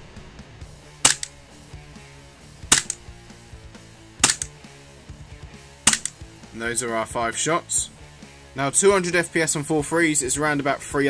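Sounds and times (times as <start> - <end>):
faint background music: 0.0 - 11.0
airsoft pistol shots: 1.0 - 1.4, 2.7 - 3.1, 4.2 - 4.6, 5.9 - 6.2.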